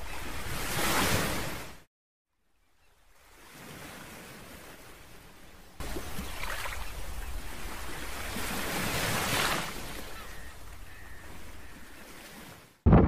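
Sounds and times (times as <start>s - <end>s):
waves lapping on pebbles: 3.2s - 10.2s.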